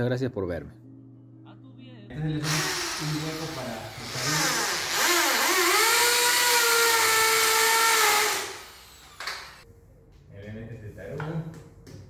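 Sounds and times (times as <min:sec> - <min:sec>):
electric drill boring into wall: 0:02.2 - 0:09.6.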